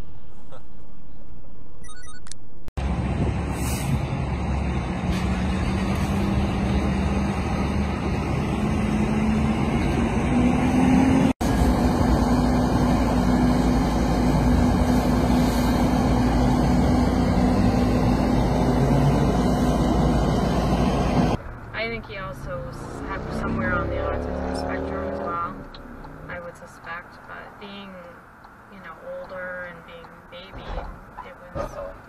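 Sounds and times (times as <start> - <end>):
fire engine motor humming: 2.8 - 27.0.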